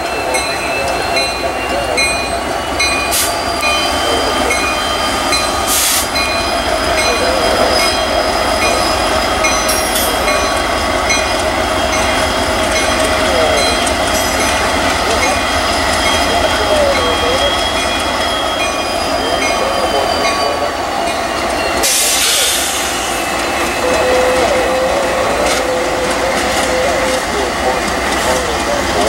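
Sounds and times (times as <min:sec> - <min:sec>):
diesel locomotives rumbling: 0:00.0 - 0:29.0.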